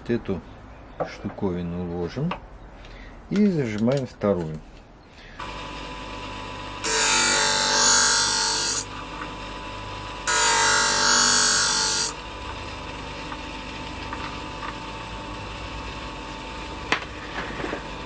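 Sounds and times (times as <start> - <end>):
sharpener motor humming: 5.4 - 16.4
blade grinding on wheel: 10.2 - 12.2.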